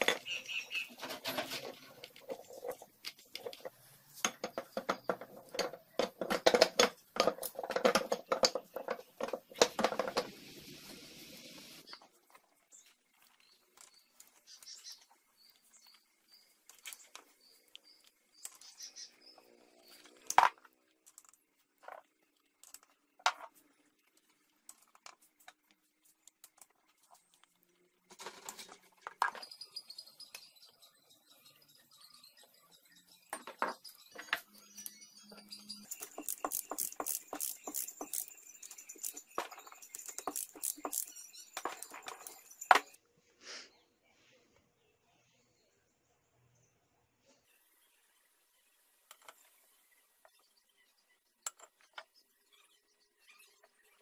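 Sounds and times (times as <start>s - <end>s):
irregular clicks and taps: 2.0s - 10.3s, 35.9s - 43.0s
faint high chirps: 29.3s - 43.0s.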